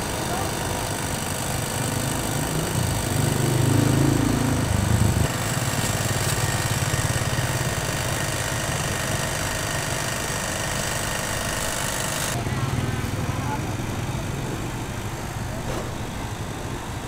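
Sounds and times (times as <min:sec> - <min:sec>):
engine droning: 0:00.0 - 0:08.6.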